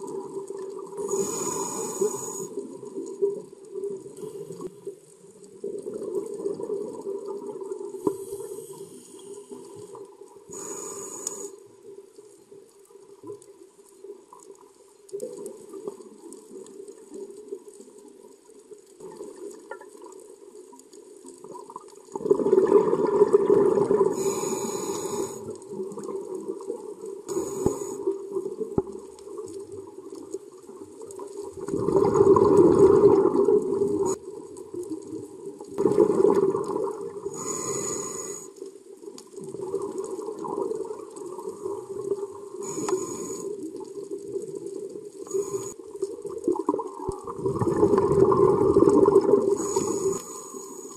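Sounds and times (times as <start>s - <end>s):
exhaled bubbles rushing: 5.6s - 8.0s, 21.5s - 24.2s, 31.4s - 34.2s, 35.6s - 37.3s, 39.4s - 42.6s, 46.1s - 50.1s.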